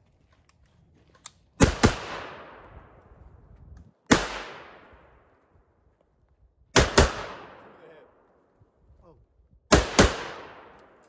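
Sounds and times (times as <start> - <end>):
rifle shots with echo: 1.6 - 3.0, 4.1 - 5.4, 6.7 - 8.4, 9.7 - 11.0.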